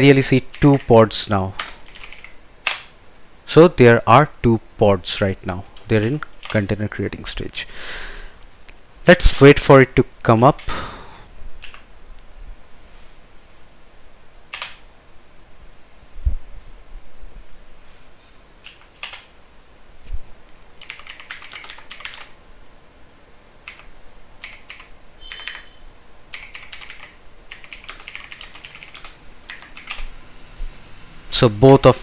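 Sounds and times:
computer keyboard typing: 0.0s - 1.0s, 1.6s - 2.9s, 5.8s - 6.8s, 11.6s - 11.8s, 14.5s - 14.8s, 18.6s - 19.3s, 20.8s - 22.4s, 23.6s - 25.7s, 26.3s - 30.1s.

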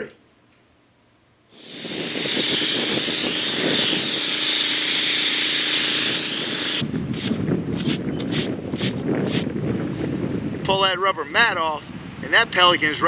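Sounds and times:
sandblaster hissing: 1.5s - 9.4s
scraping strokes: 1.6s - 9.4s.

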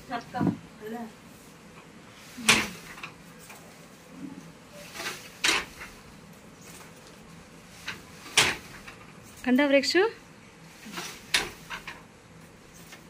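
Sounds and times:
wooden handloom clacking: 4.9s - 5.9s, 7.8s - 9.0s.

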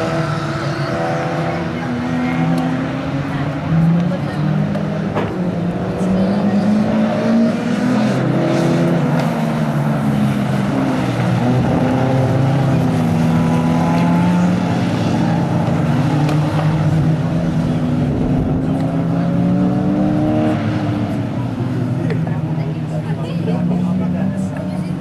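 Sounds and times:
race car engines revving: 0.0s - 25.0s.

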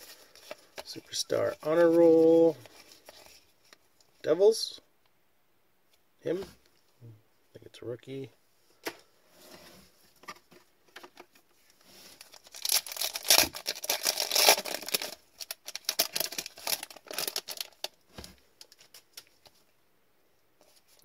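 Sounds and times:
card pack wrapper crinkling: 12.2s - 18.0s.

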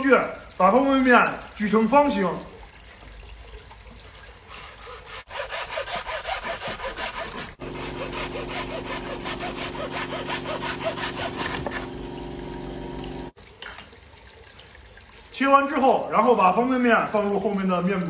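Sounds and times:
hacksaw cutting: 4.6s - 12.0s.

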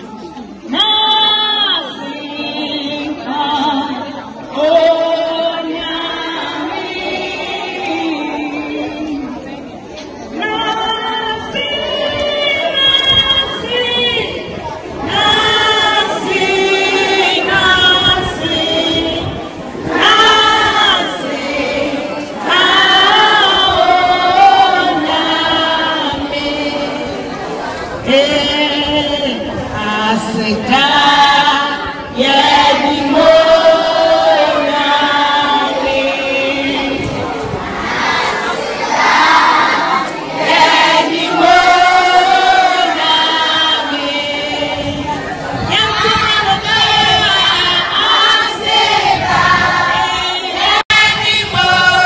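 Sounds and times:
children singing in unison: 10.4s - 29.7s, 30.6s - 52.0s.

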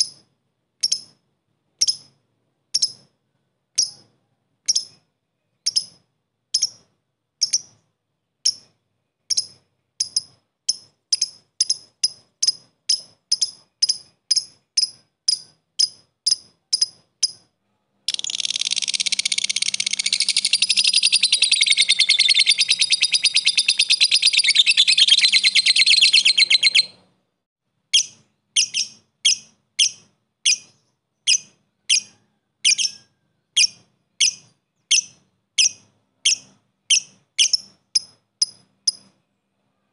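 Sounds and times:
lovebird sharp chirps: 0.0s - 1.2s, 1.8s - 3.1s, 3.8s - 17.5s, 18.1s - 27.0s, 27.9s - 39.2s
lovebird chattering trill: 0.8s - 1.2s, 1.8s - 2.1s, 4.7s - 5.0s, 5.6s - 7.8s, 9.3s - 17.5s, 18.1s - 27.0s, 28.0s - 39.1s.

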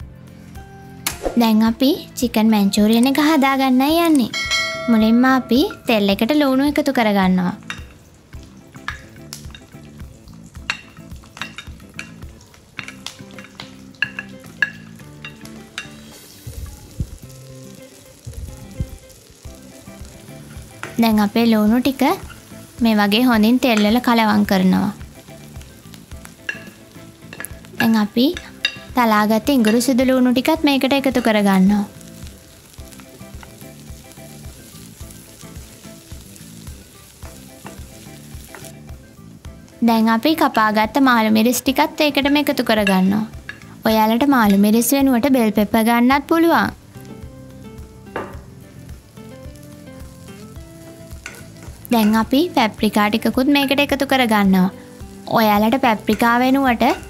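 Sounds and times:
onions sizzling in oil: 0.0s - 57.0s
ladle tapping pan: 4.1s - 6.2s, 7.6s - 39.0s, 40.2s - 43.8s, 48.1s - 48.6s, 49.5s - 54.3s, 54.9s - 57.0s.

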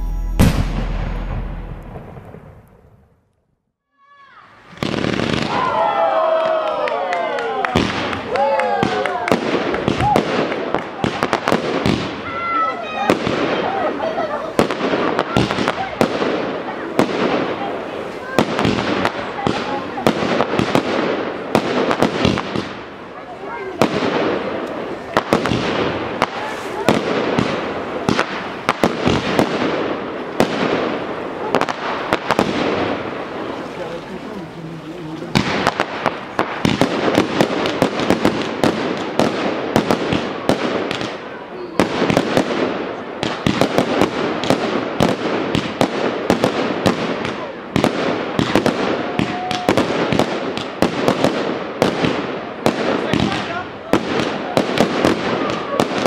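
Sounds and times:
fireworks bangs: 0.0s - 3.3s, 4.0s - 56.0s
rushing crackling noise: 9.4s - 40.5s.

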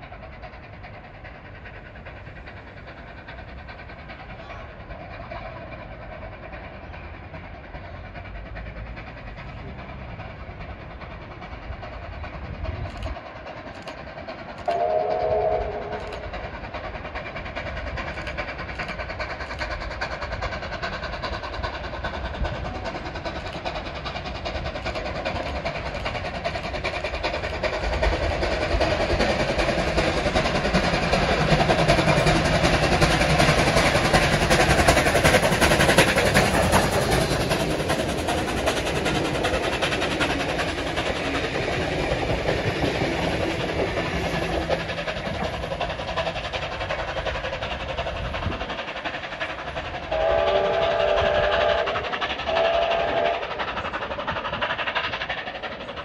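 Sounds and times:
steam locomotive approaching on rails: 0.0s - 56.0s
steam whistle chord: 14.7s - 16.0s.

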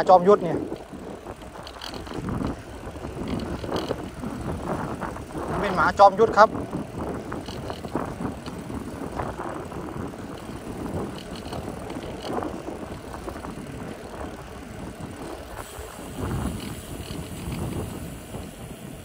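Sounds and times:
bicycle tyres on asphalt: 0.0s - 19.0s
wind on microphone: 0.0s - 19.0s.

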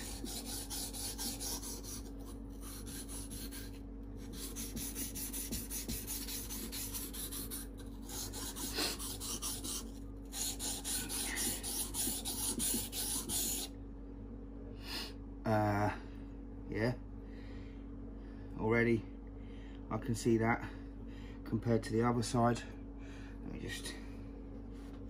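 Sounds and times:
knife scraping on whetstone: 0.0s - 13.7s.

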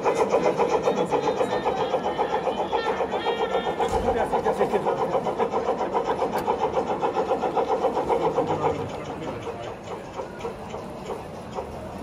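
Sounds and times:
model steam locomotive chuffing: 0.0s - 12.0s
model train running noise: 0.0s - 12.0s.

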